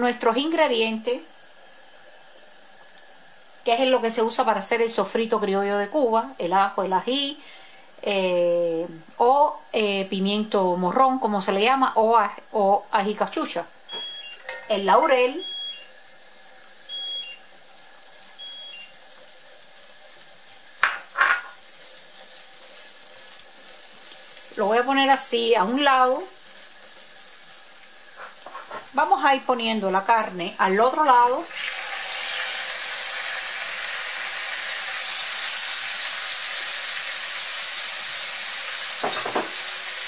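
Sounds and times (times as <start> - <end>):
vegetables sizzling in oil: 0.0 - 40.0
short high-pitched beeps: 13.9 - 14.5, 15.4 - 15.9, 16.9 - 17.4, 18.4 - 18.9.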